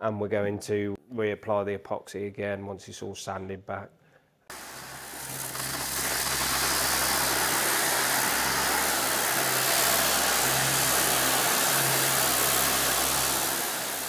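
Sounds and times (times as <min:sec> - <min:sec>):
orbital sander on steel: 0:04.5 - 0:14.0.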